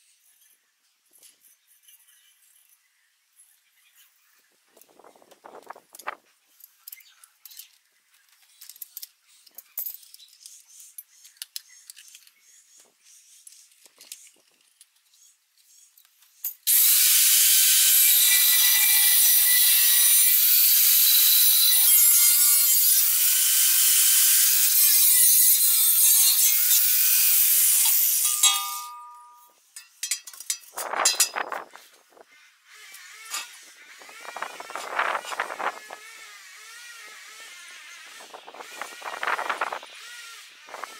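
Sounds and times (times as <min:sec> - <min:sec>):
tools clicking and knocking: 0:06.0 - 0:12.4, 0:27.8 - 0:31.6
angle grinder cutting steel: 0:16.7 - 0:31.7, 0:32.7 - 0:40.9.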